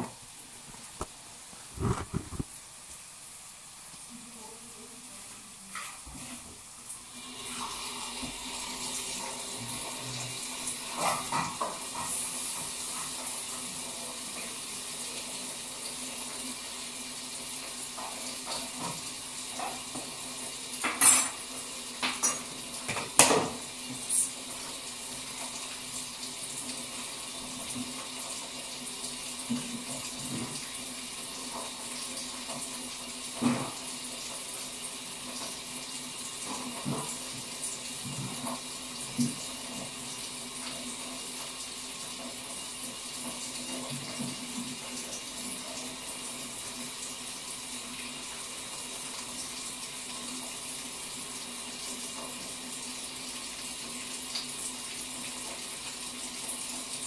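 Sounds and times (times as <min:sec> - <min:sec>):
tap water running: 0:00.0 - 0:57.0
dishes and cutlery clinking: 0:20.8 - 0:23.6.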